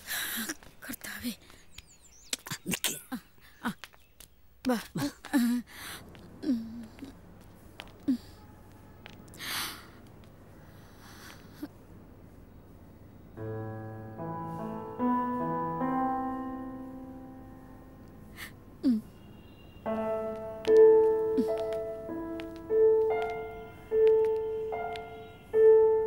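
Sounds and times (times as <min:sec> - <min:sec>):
soft piano music: 0:13.3 - 0:18.8, 0:19.8 - 0:26.0.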